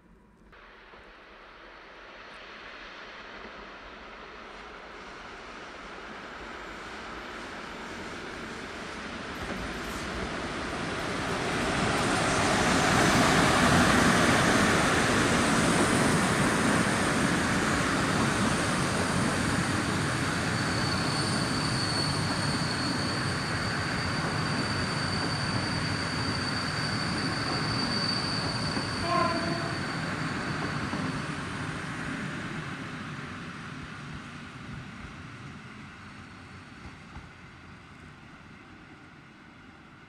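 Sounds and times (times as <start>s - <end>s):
train rolling past: 0.0s - 40.0s
high-pitched wheel squeal: 19.9s - 31.4s
short squeak: 20.6s - 31.3s.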